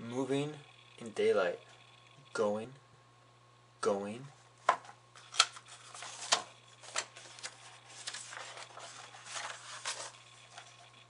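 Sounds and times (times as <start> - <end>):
paper page snapping and crackling: 5.2 - 10.2
paper rustling: 5.2 - 10.8.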